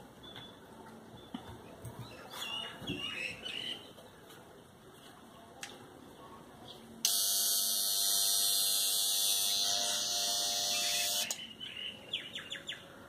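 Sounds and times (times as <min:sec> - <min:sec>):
rotary grinder whine: 0:07.1 - 0:11.3.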